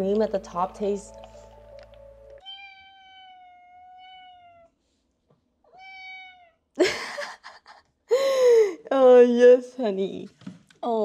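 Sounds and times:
cat meowing: 0:02.4 - 0:04.8, 0:05.7 - 0:06.7.

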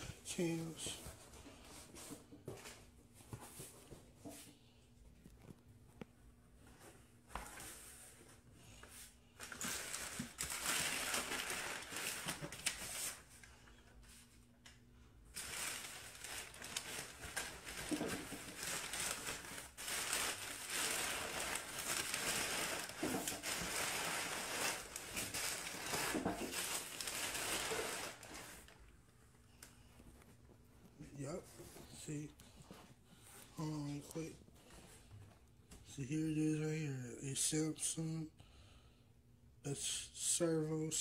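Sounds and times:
packing paper rustling and crinkling: 0:09.4 - 0:13.3, 0:15.3 - 0:28.8.

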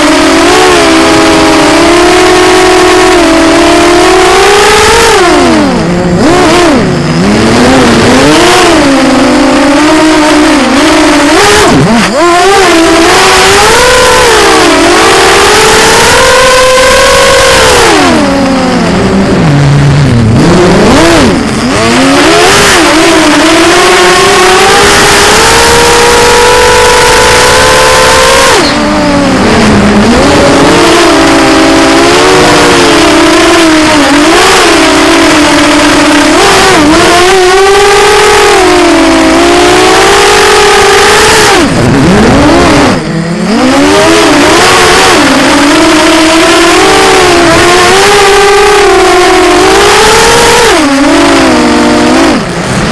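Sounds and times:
drone motors whining: 0:00.0 - 0:52.9.

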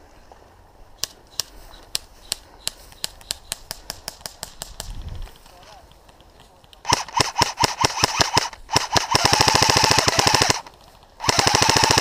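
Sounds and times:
airsoft rifle shots: 0:01.0 - 0:05.2, 0:06.8 - 0:12.0.

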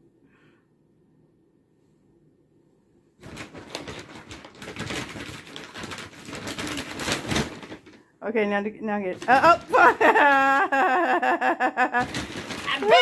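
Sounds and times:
paper bag crinkling: 0:03.2 - 0:08.1, 0:09.1 - 0:10.4, 0:12.0 - 0:13.0.

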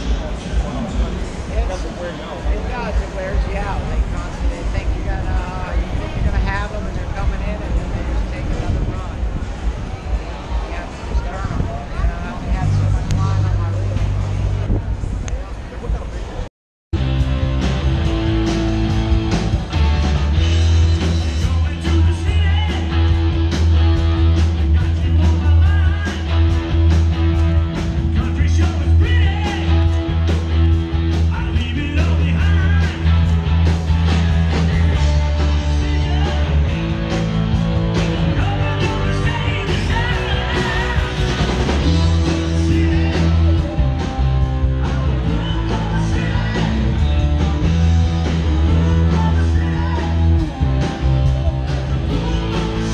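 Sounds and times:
live rock band playing: 0:17.0 - 0:52.9
person singing: 0:37.9 - 0:47.5.

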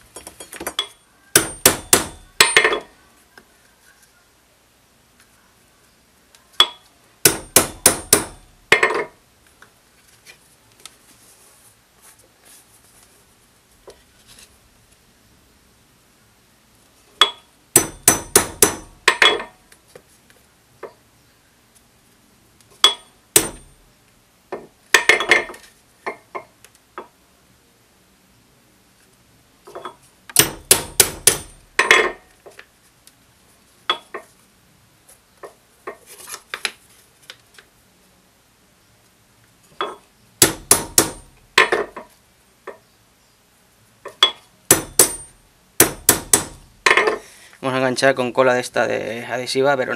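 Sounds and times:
tools striking workbench: 0:00.1 - 0:02.9, 0:06.6 - 0:09.2, 0:17.2 - 0:19.6, 0:22.8 - 0:23.7, 0:24.5 - 0:27.1, 0:29.7 - 0:32.2, 0:39.8 - 0:42.1, 0:44.1 - 0:47.2.

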